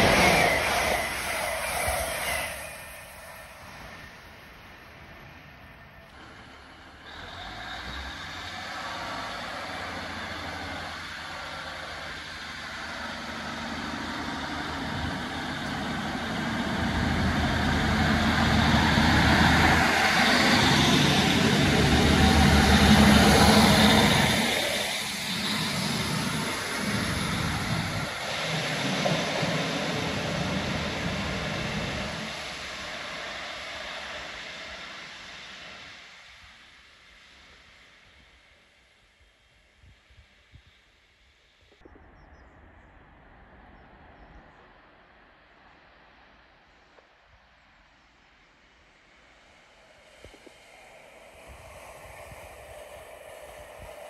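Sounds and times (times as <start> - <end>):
diesel train engines running: 0.0 - 38.3.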